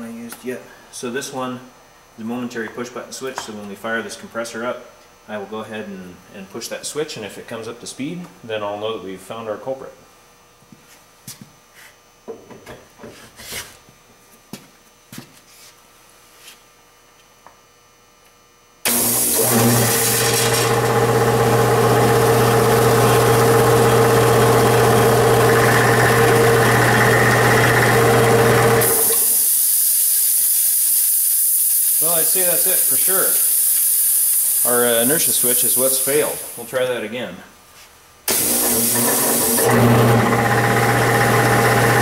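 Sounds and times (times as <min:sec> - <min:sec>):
air compressor motor humming: 0:18.8 - 0:36.9, 0:38.2 - 0:42.0
air hissing: 0:28.8 - 0:36.8.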